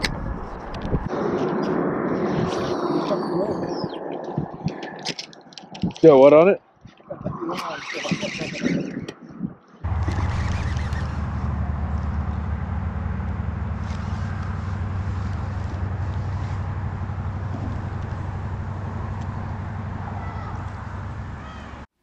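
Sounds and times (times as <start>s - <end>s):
motor running with throbbing hum: 9.8s - 21.8s.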